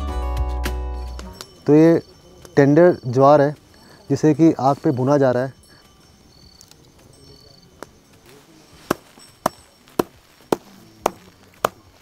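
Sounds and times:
stick beating grain heads: 8.7s - 12.0s.

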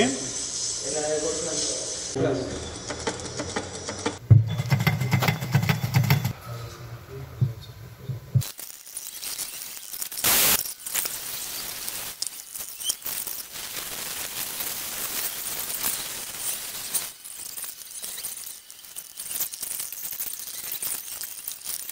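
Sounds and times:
short burst of hiss: 0.0s - 2.2s, 8.4s - 17.2s
hot-air welder humming: 2.9s - 6.4s, 8.4s - 17.7s
small metal parts clinking: 8.4s - 13.7s, 15.5s - 21.9s.

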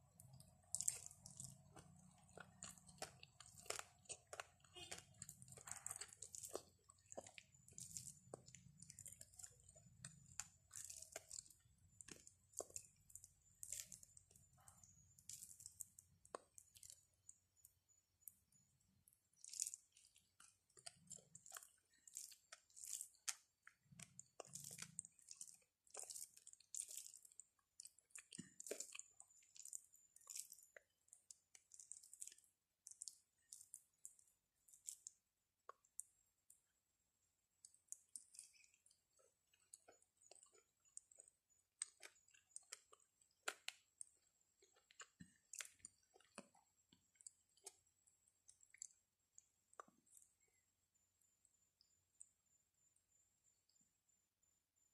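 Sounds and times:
chewing: 0.0s - 17.4s, 19.0s - 36.6s, 37.6s - 50.5s
fingers mixing rice on plate: 0.2s - 17.4s.

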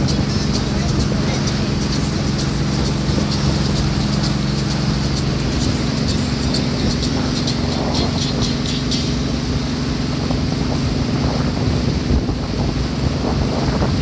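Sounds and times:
motorboat engine running: 0.0s - 14.0s
water rushing: 0.0s - 14.0s
wind buffeting microphone: 0.0s - 14.0s.

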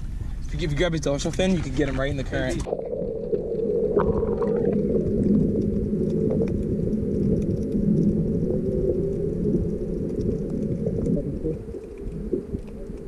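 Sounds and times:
muffled underwater water rumble: 0.0s - 13.0s
faint ticks: 4.9s - 13.0s.

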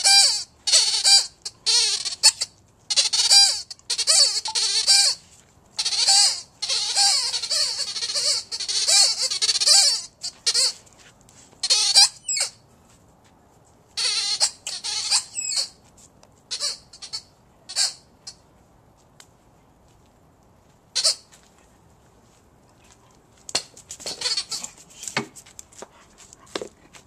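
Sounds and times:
rubber squeaky ball squeaking: 0.0s - 5.2s, 5.8s - 10.8s, 11.6s - 12.6s, 14.0s - 15.8s, 16.5s - 18.1s, 21.0s - 21.3s, 23.6s - 25.2s.

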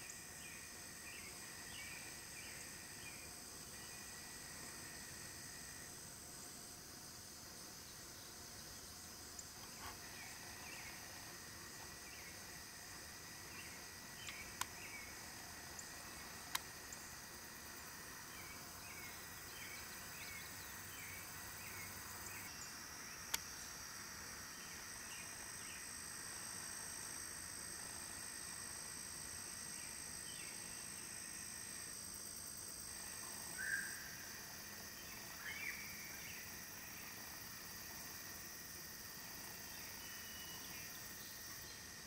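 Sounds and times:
insects chirring: 0.0s - 42.0s.

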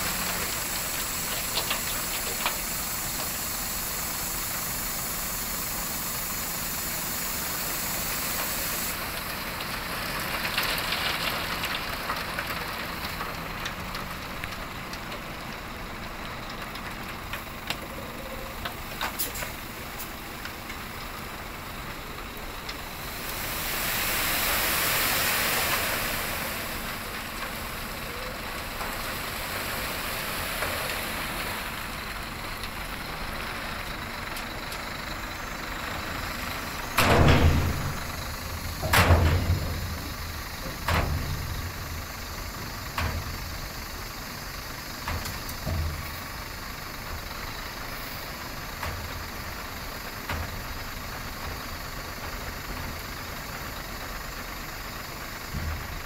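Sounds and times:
truck engine running: 0.0s - 56.0s
sand and gravel sliding out: 22.1s - 32.1s
loud metallic bangs: 37.0s - 40.4s.

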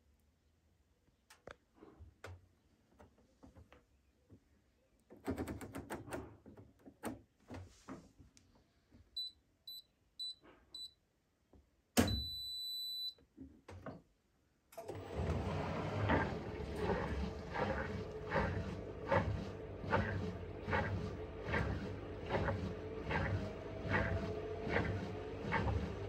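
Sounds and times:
short beeps: 9.2s - 11.0s, 12.1s - 13.2s
washing machine running: 14.8s - 26.0s.

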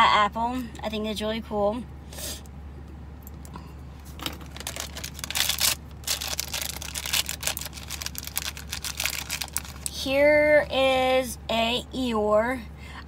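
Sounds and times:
plastic bag crinkling and tearing: 4.3s - 10.0s.

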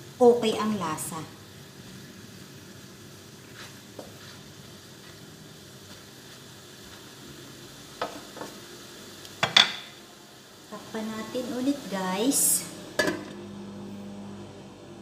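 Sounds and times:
shrimp sizzling in a frying pan: 0.0s - 13.6s
spatula stirring in a pan: 3.4s - 7.2s.

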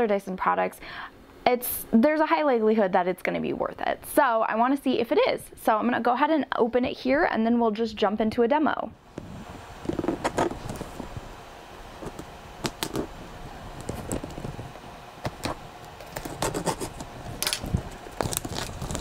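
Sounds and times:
plastic wrap crinkling: 15.3s - 19.0s.

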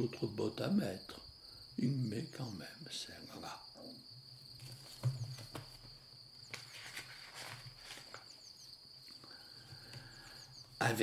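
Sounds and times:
insects chirring: 0.0s - 11.0s
book pages turning: 6.4s - 8.4s.

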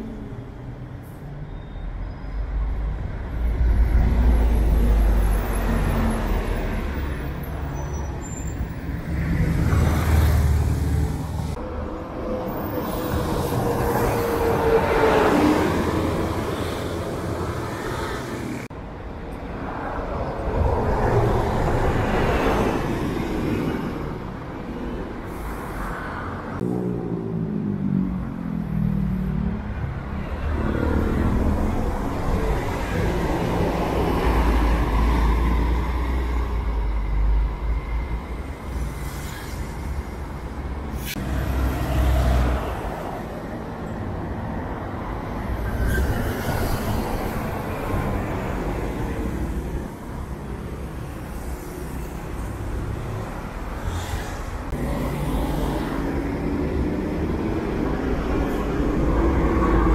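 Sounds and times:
bus diesel engines rumbling: 0.0s - 59.9s
road traffic: 0.0s - 59.9s
falling squeal: 7.6s - 8.9s.

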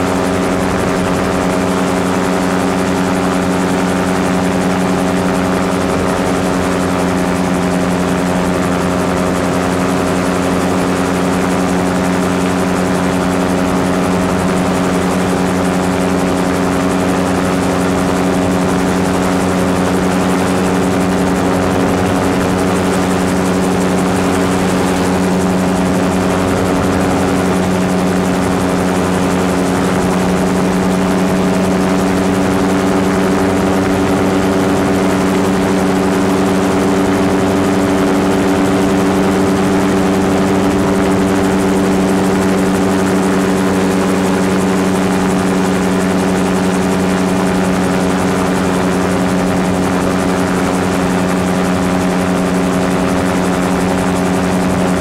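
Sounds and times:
gyrocopter engine and propeller drone: 0.0s - 55.0s
wind rushing: 20.0s - 29.9s.

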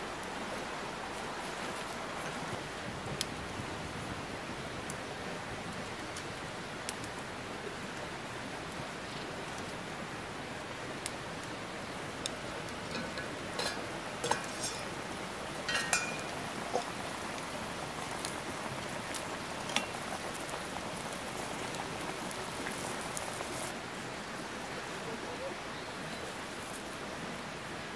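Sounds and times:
steady rain-like hiss: 0.0s - 27.9s
metal pot lid clinking: 13.0s - 14.9s, 15.6s - 16.9s.

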